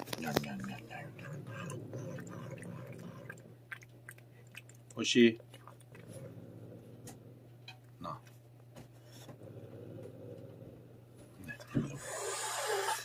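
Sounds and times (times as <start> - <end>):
cat chewing food: 0.0 - 7.3.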